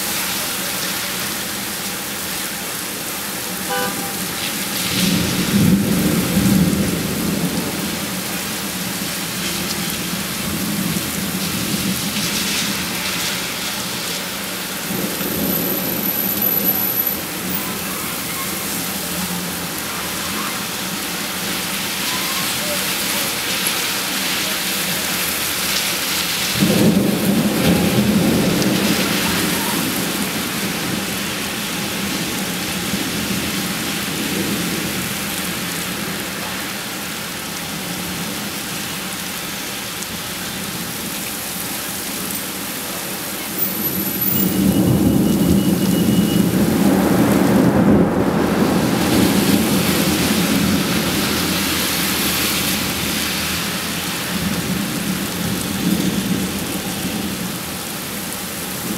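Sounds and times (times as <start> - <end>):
heavy rain pouring: 0.0 - 58.9
thunder rumbling: 3.7 - 22.5, 26.3 - 36.4, 43.7 - 57.8.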